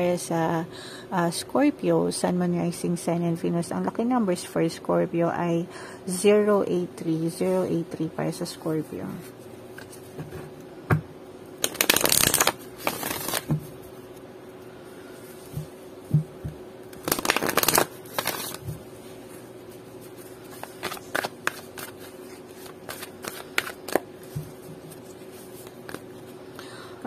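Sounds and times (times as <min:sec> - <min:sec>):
cards riffling: 0:11.6 - 0:13.5, 0:16.9 - 0:18.8, 0:20.4 - 0:24.4
cards clicking and tapping: 0:11.6 - 0:13.6, 0:22.9 - 0:24.5.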